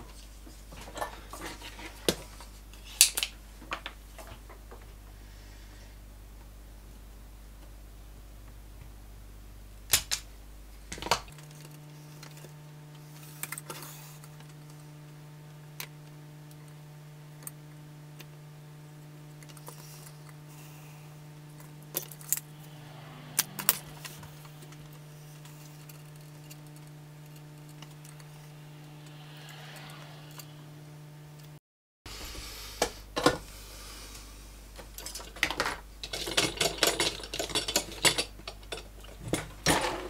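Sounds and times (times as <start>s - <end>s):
low hum: 5.0s - 32.4s.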